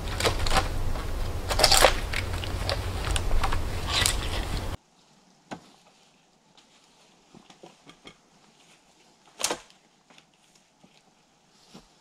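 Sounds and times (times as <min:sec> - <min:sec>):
dry wood cracking and creaking: 0:00.0 - 0:04.8
steady low rumble: 0:00.0 - 0:04.8.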